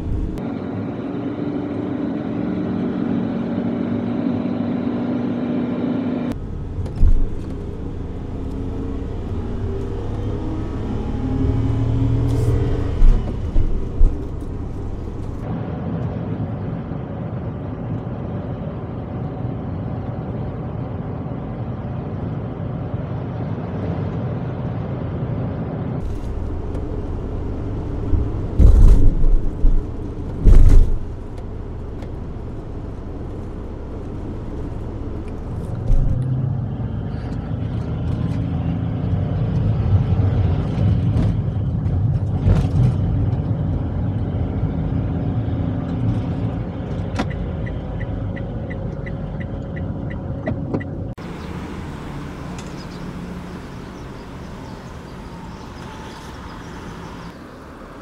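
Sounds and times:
road noise: 0.0s - 58.0s
loud low thumps: 26.1s - 36.2s
small engine running: 51.2s - 58.0s.

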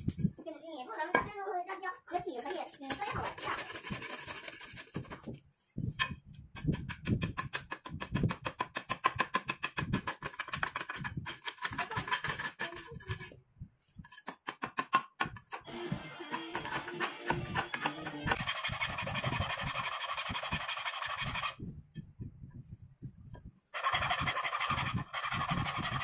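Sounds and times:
cleaver chopping wooden stick: 16.3s - 18.5s.

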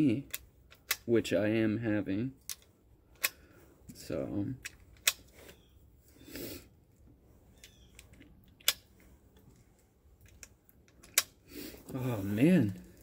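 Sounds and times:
rounds clicking into magazine: 0.3s - 1.1s, 2.4s - 3.4s, 4.6s - 5.3s, 7.6s - 8.9s.

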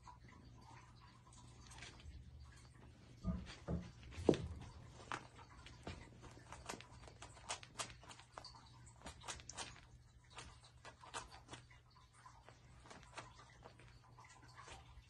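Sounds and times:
faint low hum: 0.0s - 15.0s
kittens clicking and rustling: 0.0s - 15.0s
claws scrabbling on toy and rug: 1.4s - 15.0s.

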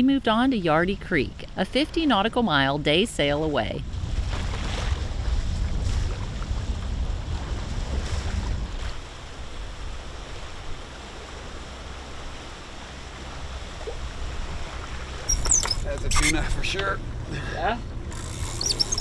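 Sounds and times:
sea water washing around boat: 0.1s - 19.0s
wind buffeting microphone: 0.4s - 10.9s.

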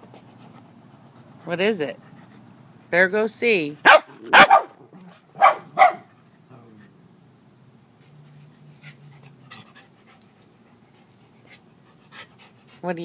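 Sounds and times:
puppy barking: 3.8s - 6.1s.

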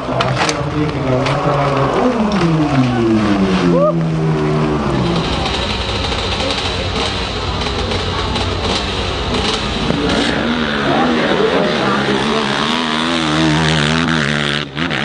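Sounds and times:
dirt bike engines revving: 0.0s - 15.0s.

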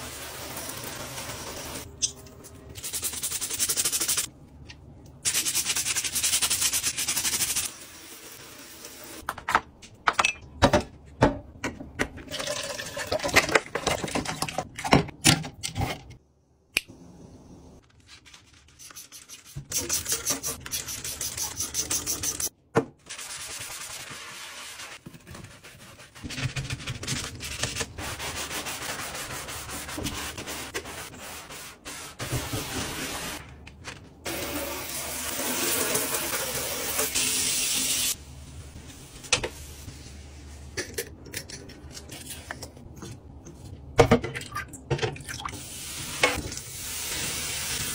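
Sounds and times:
brush scrubbing a sink: 0.0s - 1.9s, 2.7s - 4.3s, 5.2s - 9.2s, 18.0s - 33.5s, 34.2s - 40.7s.

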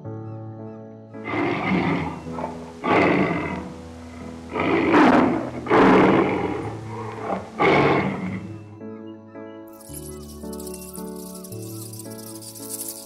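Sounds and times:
soft background music: 0.0s - 13.0s
tiger roaring: 1.2s - 8.6s.

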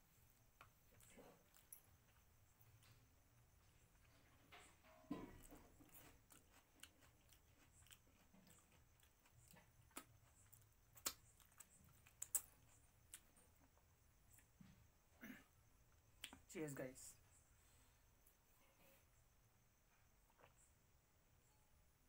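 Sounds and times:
soft chewing: 0.0s - 15.0s, 15.8s - 16.5s, 17.3s - 20.9s
mouth clicks and lip smacks: 11.0s - 12.5s.

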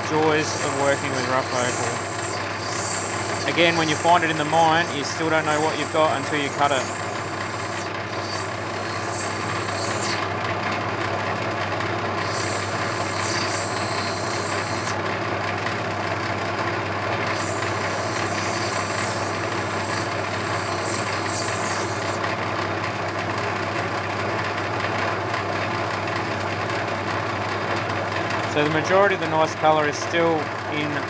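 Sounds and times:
electric motor humming: 0.0s - 22.4s
stone grinding hiss: 0.1s - 10.3s, 12.2s - 15.0s, 17.3s - 22.2s.

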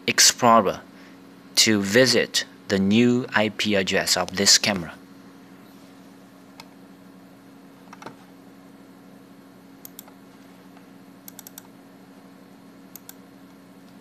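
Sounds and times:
mouse and keyboard clicks: 11.3s - 11.7s, 12.9s - 13.2s.

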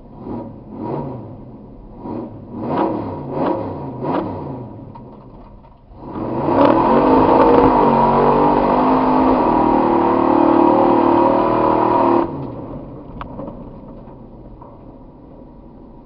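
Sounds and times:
truck engine revving: 5.9s - 13.6s.

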